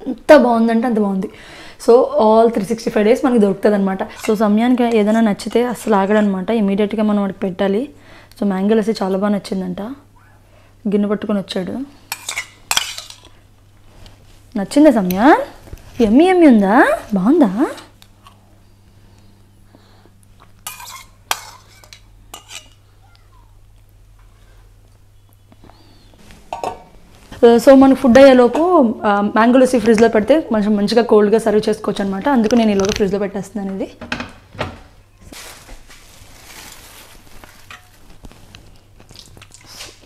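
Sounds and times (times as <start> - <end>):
faint low hum: 0.0 - 39.8
plastic bag crinkling: 35.2 - 40.0.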